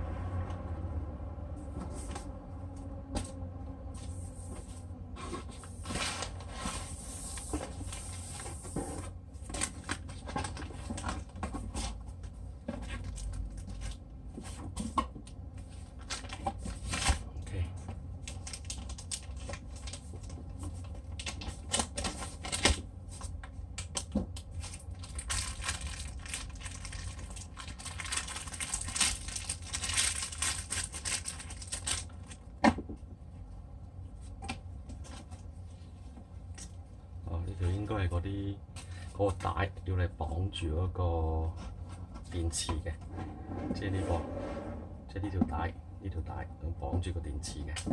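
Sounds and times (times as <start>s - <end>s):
plastic bags crinkling: 24.4s - 32.5s.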